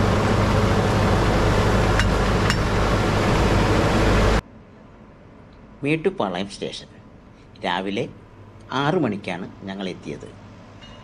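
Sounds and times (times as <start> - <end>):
low hum: 0.0 - 5.8
sharp metallic clinks: 10.8 - 11.0.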